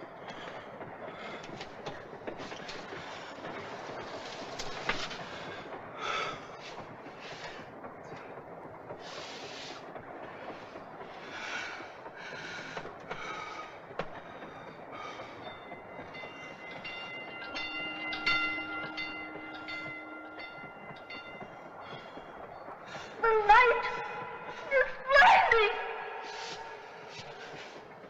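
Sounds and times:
train rumbling and clattering: 0.0 - 28.0
high-pitched multi-tone whine: 14.5 - 28.0.

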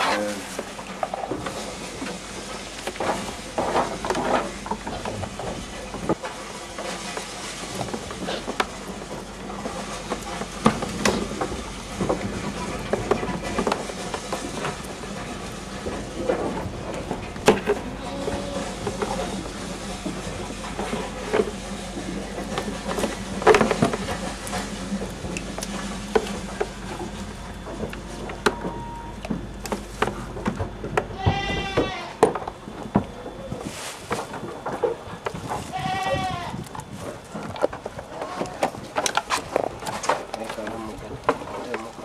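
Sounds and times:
goat bleating: 31.1 - 32.2, 35.7 - 36.6.

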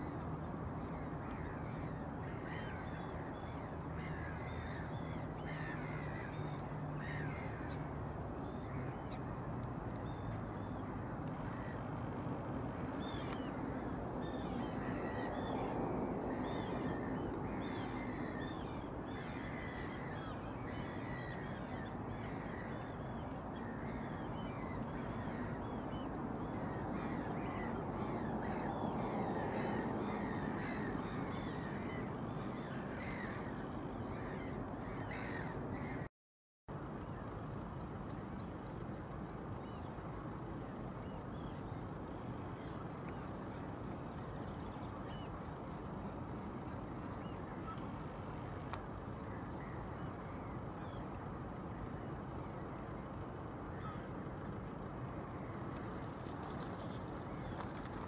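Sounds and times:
many birds calling: 0.8 - 8.9, 13.0 - 36.1, 53.7 - 54.1.

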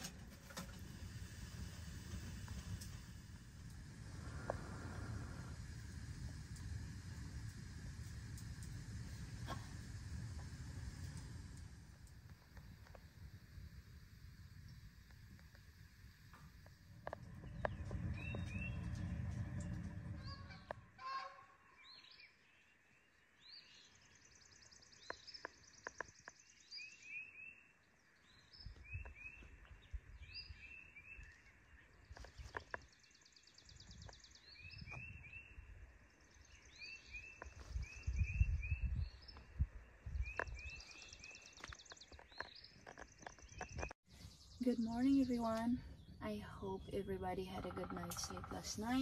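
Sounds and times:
wind rumbling on microphone: 0.0 - 21.0, 28.2 - 32.9, 33.6 - 49.0
bird chirps: 17.1 - 49.0.

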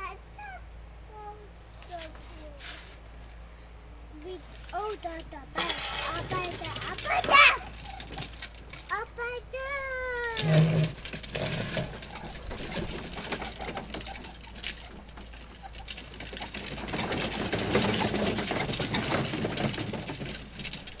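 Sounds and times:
plastic toy car wheels rattling on bricks: 4.4 - 9.0, 10.1 - 21.0.

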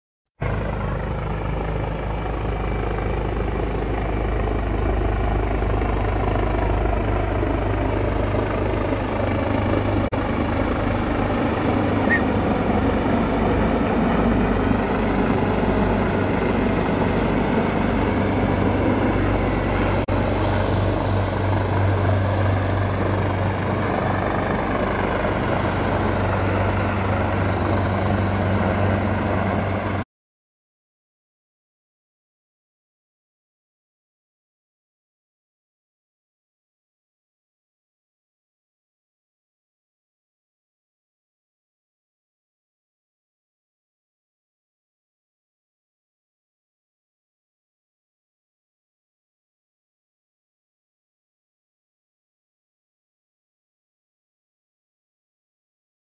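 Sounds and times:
helicopter rotor and engine drone: 0.4 - 30.1.

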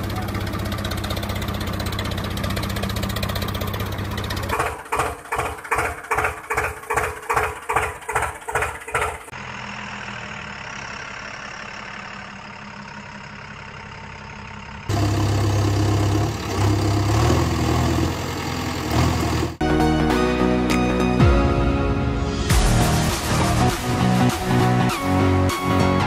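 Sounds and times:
engine idling: 0.0 - 19.6
tractor engine chugging: 0.0 - 19.6
deep engine running: 0.0 - 26.0.

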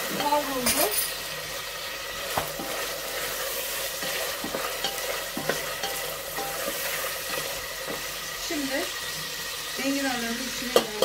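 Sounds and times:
meat sizzling in oil: 0.0 - 11.0
wooden spoon stirring: 2.2 - 8.2
spoon knocking against pot: 10.7 - 11.0.

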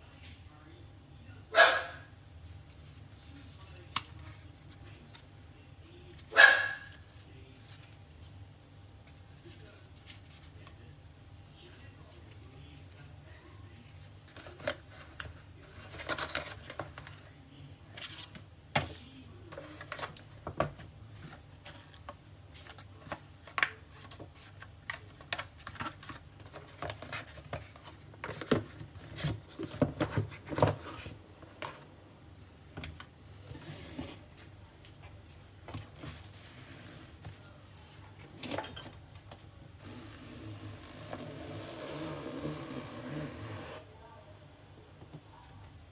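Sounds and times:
low steady hum: 0.0 - 45.9
hands handling cardboard box: 14.0 - 17.3, 17.9 - 31.9.

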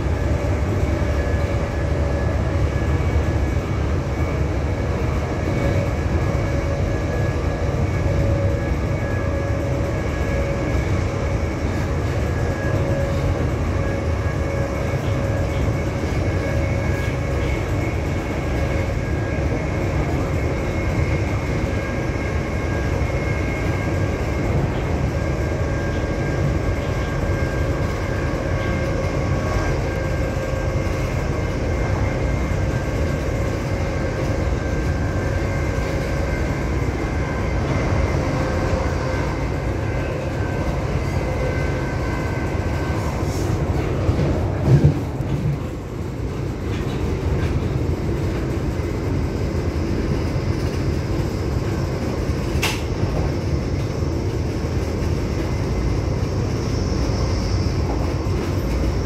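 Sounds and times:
diesel train engine rumble: 0.0 - 59.0
steady whine: 0.0 - 59.0.

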